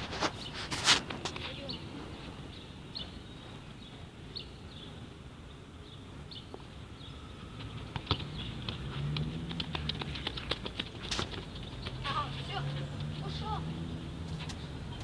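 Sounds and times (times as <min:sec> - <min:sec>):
small birds chirping: 0:00.2 - 0:15.0
child running in sandals: 0:07.5 - 0:13.4.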